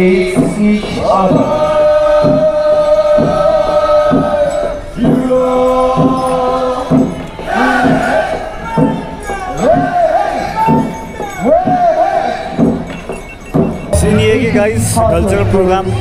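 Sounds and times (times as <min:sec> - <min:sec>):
men chanting together: 0:00.0 - 0:10.9
regular beat: 0:06.9 - 0:16.0.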